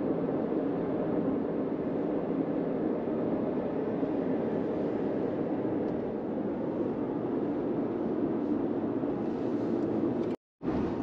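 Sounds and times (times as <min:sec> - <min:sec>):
road and engine noise in car: 0:04.4 - 0:11.0.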